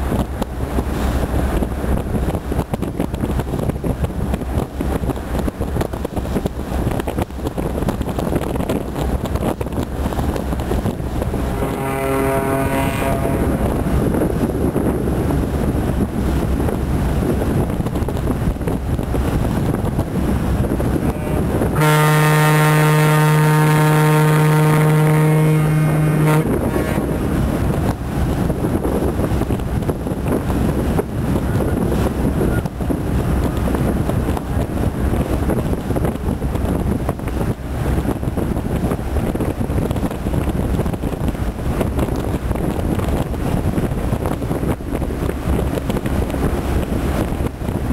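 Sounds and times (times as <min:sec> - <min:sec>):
low boat engine rumble: 0:00.0 - 0:47.9
wind buffeting microphone: 0:00.0 - 0:47.9
boat horn blast: 0:11.4 - 0:14.1, 0:21.0 - 0:27.4.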